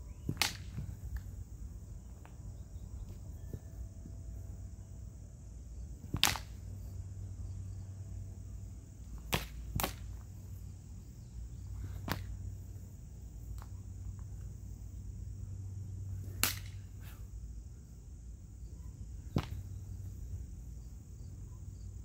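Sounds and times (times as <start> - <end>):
sabre blades clacking: 16.4 - 16.9.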